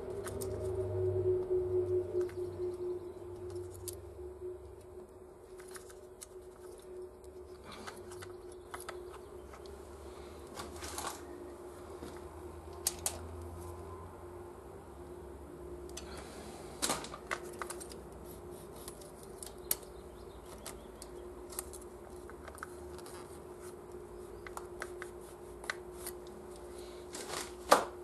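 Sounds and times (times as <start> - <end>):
steady hum: 0.0 - 28.0.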